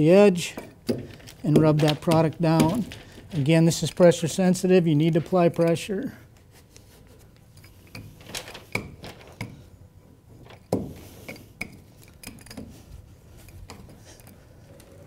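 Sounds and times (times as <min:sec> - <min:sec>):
hand roller clicking and knocking: 0:00.6 - 0:03.6.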